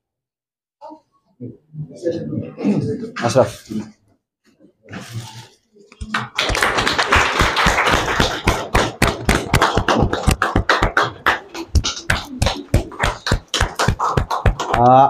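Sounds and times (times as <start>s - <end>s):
people clapping: 6.0s - 15.0s.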